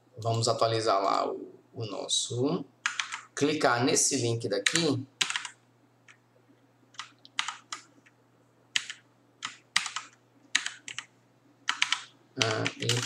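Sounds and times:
typing on computer keyboard: 2.8 - 3.3, 4.6 - 6.2, 7.0 - 7.9, 8.8 - 11.1, 11.7 - 13.0.

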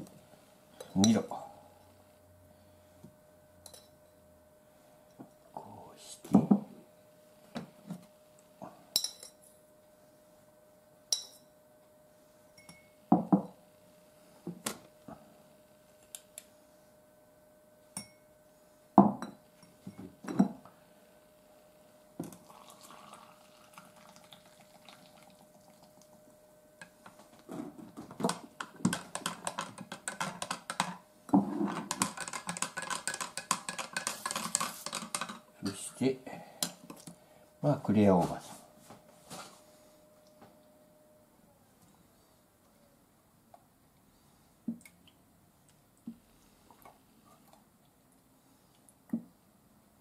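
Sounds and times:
spoon clinking against glass: 12.6 - 13.0
spoon stirring in cup: 28.1 - 35.5.

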